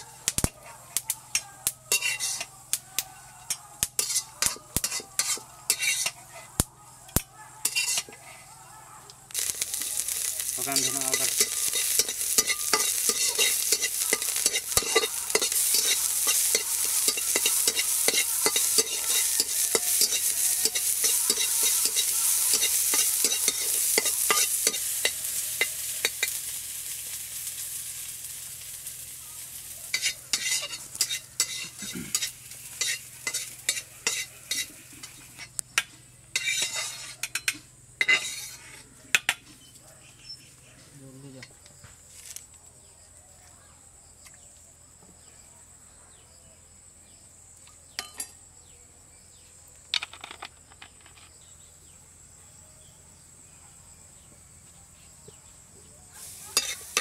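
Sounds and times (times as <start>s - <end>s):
garlic sizzling in pan: 0.0s - 8.2s, 9.3s - 38.8s, 55.5s - 57.0s
steel spatula scraping pan: 1.9s - 2.5s, 4.0s - 6.6s, 7.6s - 8.4s, 9.4s - 26.4s, 29.9s - 35.6s, 36.3s - 38.9s, 56.3s - 57.0s.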